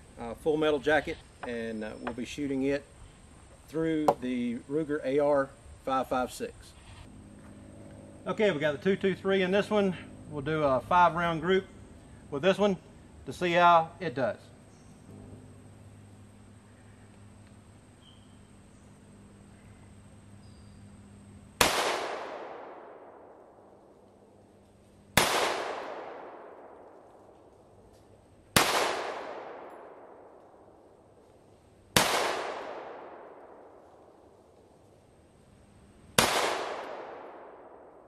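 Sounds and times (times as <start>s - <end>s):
rifle shots with echo: 21.6s - 23.7s, 25.2s - 27.3s, 28.5s - 30.7s, 31.9s - 33.9s, 36.2s - 38.0s.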